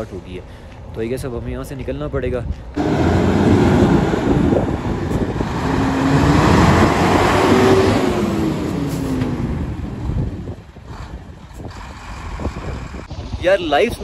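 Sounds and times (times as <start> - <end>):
vehicle driving past: 2.8 - 10.3.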